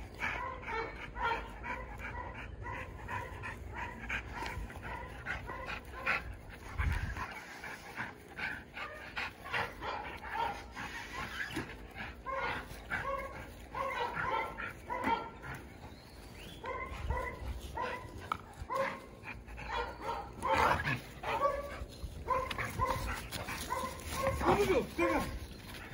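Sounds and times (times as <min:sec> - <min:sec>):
dogs panting: 0:00.0 - 0:25.9.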